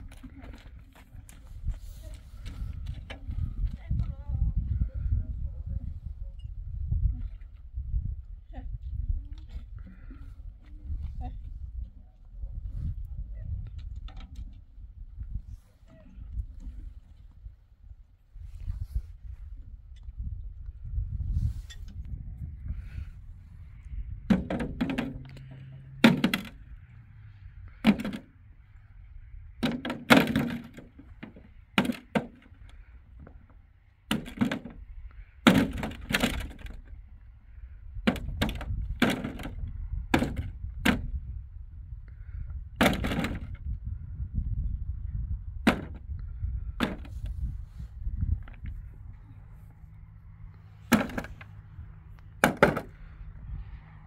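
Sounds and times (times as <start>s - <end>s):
sharp knocks and cracks: 29.6s - 32.5s, 35.4s - 36.8s, 38.0s - 41.1s, 50.9s - 51.5s, 52.4s - 53.0s.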